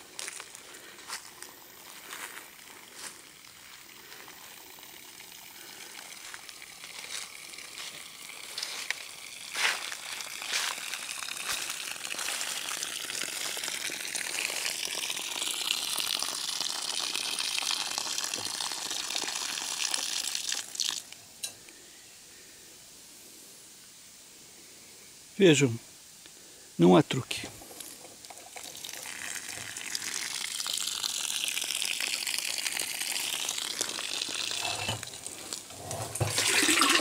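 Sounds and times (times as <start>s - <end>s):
water gushing into a drum: 2.5s - 21.2s, 27.5s - 37.0s.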